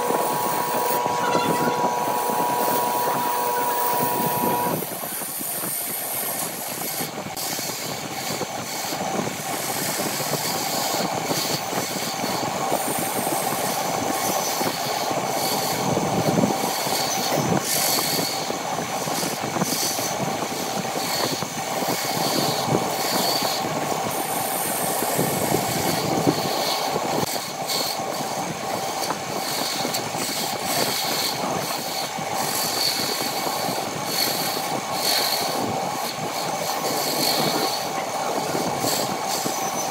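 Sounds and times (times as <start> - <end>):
turning tool scraping wood: 0.0 - 4.9
wood lathe whining: 0.0 - 7.8, 14.4 - 39.9.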